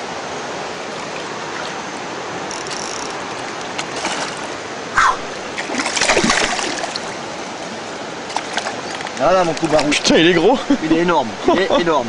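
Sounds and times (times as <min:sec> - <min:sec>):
water splashing: 0:00.6 - 0:10.8
river rushing over rapids: 0:03.1 - 0:12.0.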